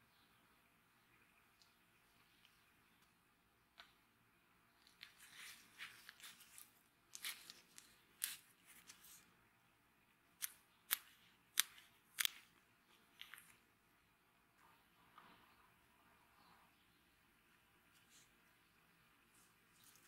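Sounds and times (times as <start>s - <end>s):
gloved hand handling metal blade: 4.8s - 9.2s.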